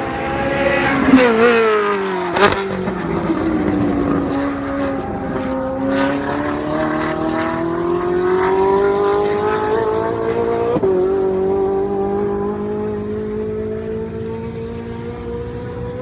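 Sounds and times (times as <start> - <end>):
sports car engine accelerating: 0.0 - 16.0.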